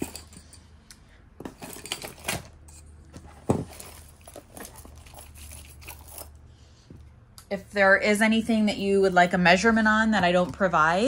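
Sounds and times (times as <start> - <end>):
jewelry clinking and jangling: 0.0 - 0.8, 1.4 - 6.5.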